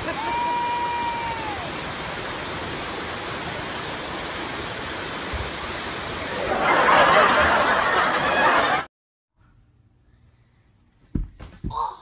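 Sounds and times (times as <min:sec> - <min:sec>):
rushing water: 0:00.0 - 0:08.8.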